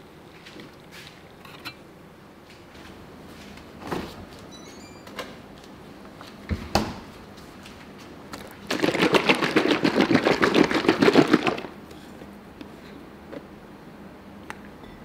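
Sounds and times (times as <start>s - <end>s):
milk sloshing in shaken carton: 8.4s - 11.8s.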